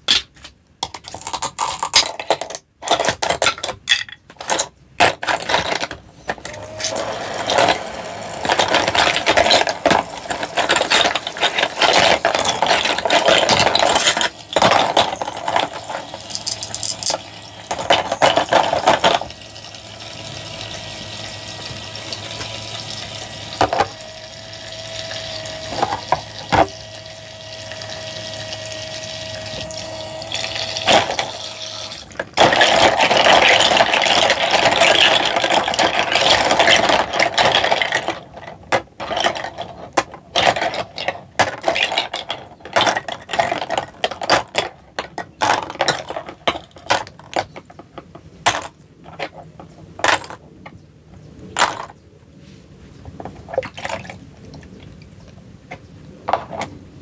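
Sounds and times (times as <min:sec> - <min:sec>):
steady hum: 0:05.4 - 0:37.1
water running from faucet: 0:06.6 - 0:11.8, 0:15.8 - 0:32.1.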